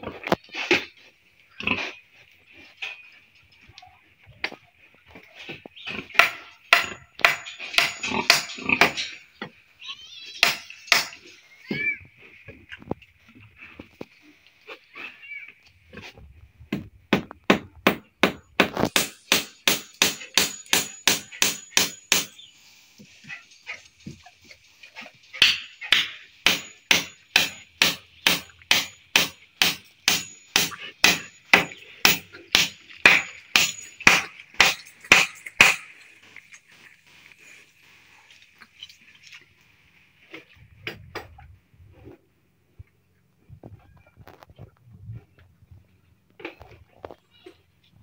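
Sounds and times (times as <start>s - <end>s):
hammer striking: 6.2s - 9.2s, 10.4s - 11.2s, 17.1s - 22.4s, 25.4s - 35.9s.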